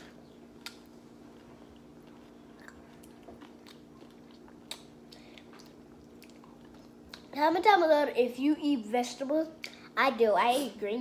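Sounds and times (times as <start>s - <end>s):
chewing and biting food: 0.5s - 7.3s.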